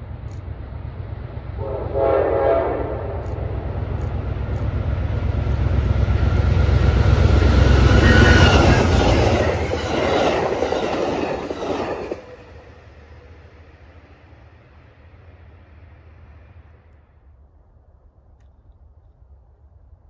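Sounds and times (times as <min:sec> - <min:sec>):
train cars rattling past: 0:00.0 - 0:17.3
locomotive and wheels rumbling: 0:00.0 - 0:20.0
train horn blast: 0:01.6 - 0:03.6, 0:07.5 - 0:09.6.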